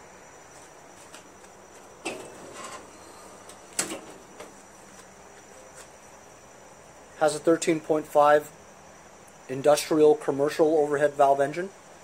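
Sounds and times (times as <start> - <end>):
faint steady hum: 0.0 - 12.0
knocks and clunks: 3.5 - 4.6.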